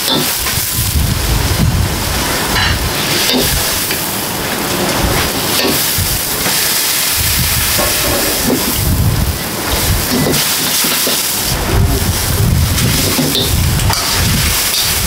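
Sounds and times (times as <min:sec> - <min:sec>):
food sizzling in wok: 0:00.0 - 0:15.0
gas burner roaring: 0:00.0 - 0:15.0
low rumbling: 0:00.4 - 0:06.5, 0:07.1 - 0:10.3, 0:11.3 - 0:15.0.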